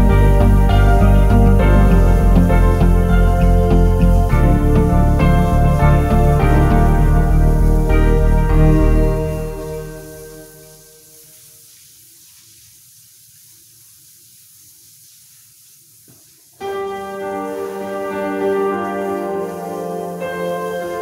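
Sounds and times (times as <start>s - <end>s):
sustained keyboard chords: 0.0s - 10.9s
faint noise: 0.0s - 21.0s.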